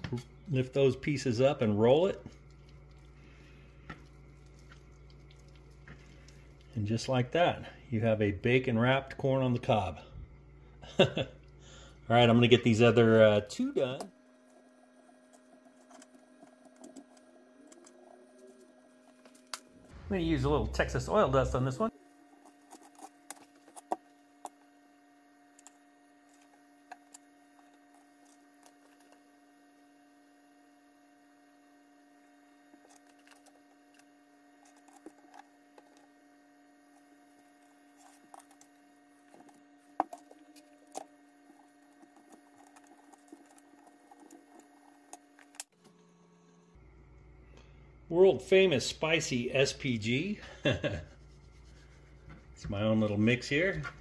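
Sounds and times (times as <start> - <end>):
steady low hum: 0.0 - 54.0
food on plastic cutting board: 21.9 - 46.2.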